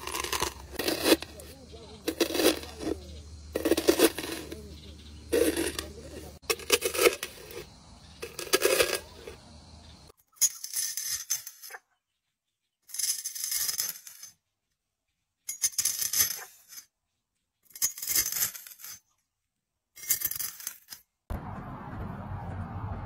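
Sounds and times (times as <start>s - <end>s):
snail eggs crunching under blade: 0.0s - 9.4s.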